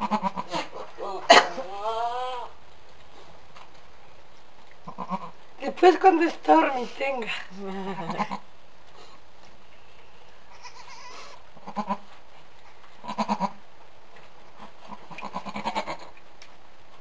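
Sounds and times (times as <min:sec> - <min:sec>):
goats bleating: 0:04.9 - 0:05.4, 0:10.5 - 0:12.1, 0:13.0 - 0:13.6, 0:15.1 - 0:16.1.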